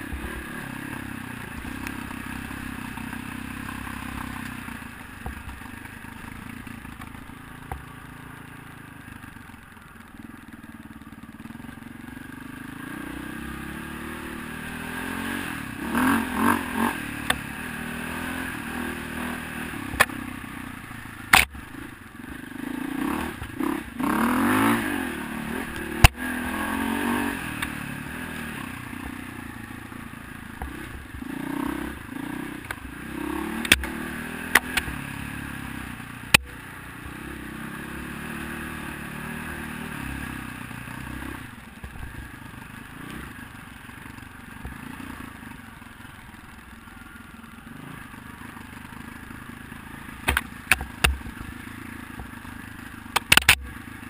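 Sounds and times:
dirt bike engine revving: 0.0s - 4.4s, 12.6s - 41.5s.

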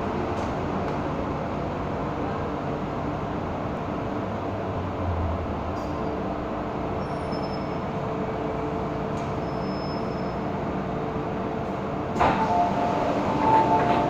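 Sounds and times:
train rumble in tunnel: 0.0s - 14.0s.

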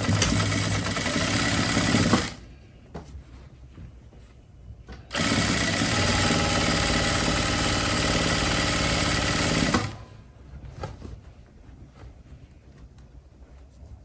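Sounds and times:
sewing machine running: 0.0s - 2.4s, 5.1s - 10.0s.

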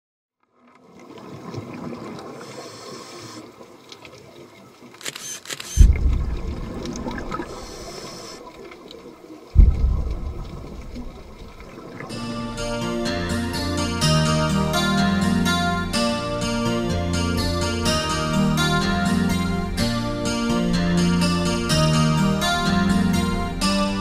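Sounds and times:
camera shutter clicks: 5.0s - 6.2s
heavy deep booms: 5.8s - 7.7s, 9.6s - 12.0s
music: 12.0s - 24.0s.

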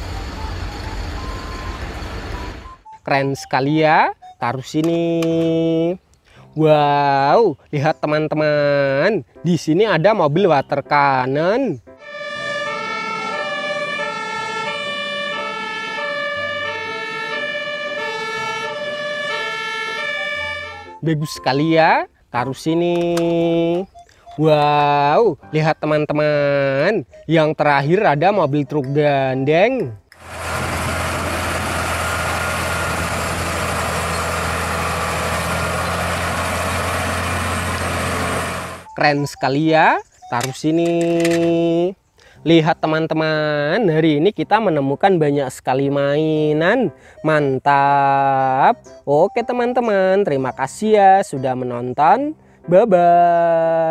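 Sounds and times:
truck diesel engine humming: 0.0s - 3.0s, 12.0s - 21.0s, 30.1s - 39.0s
siren-like electronic tones: 0.0s - 3.1s, 12.0s - 21.1s, 37.4s - 39.1s.

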